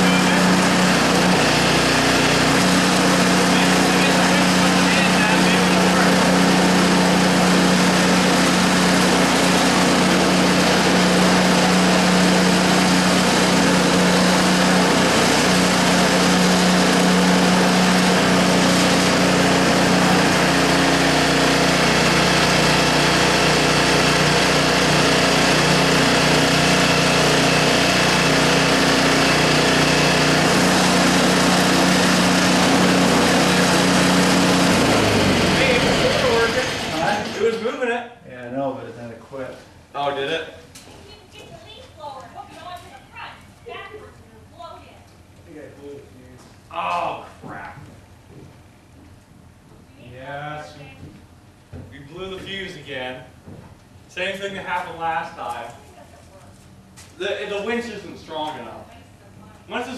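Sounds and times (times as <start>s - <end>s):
snowblower engine running: 0.0s - 37.6s.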